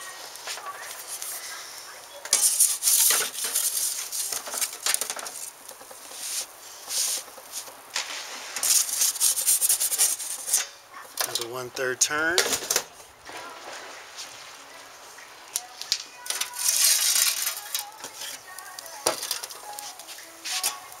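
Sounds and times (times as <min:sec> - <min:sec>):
metal peel scraping over stone: 0:02.3 - 0:10.8, 0:16.4 - 0:18.5.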